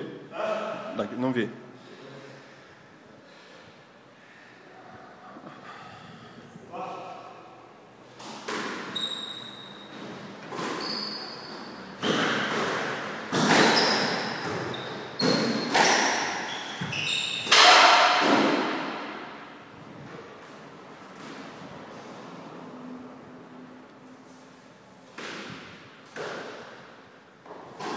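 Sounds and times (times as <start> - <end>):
squash ball hitting rackets and walls: 8.1 - 22.6, 24.2 - 27.9
shoes squeaking on wooden floor: 8.7 - 17.5.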